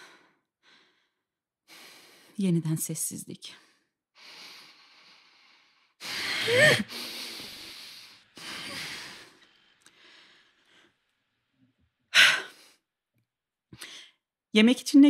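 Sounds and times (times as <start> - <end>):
woman breathing heavily: 0.0 - 2.4, 3.8 - 11.0, 12.1 - 12.8
woman sighing: 6.3 - 6.9.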